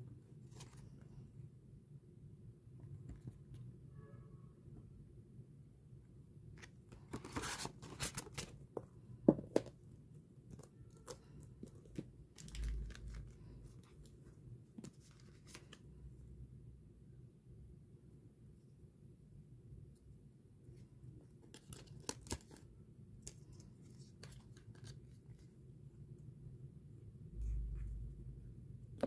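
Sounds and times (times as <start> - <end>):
paper rustling and crinkling: 6.9 - 8.6, 14.8 - 15.8.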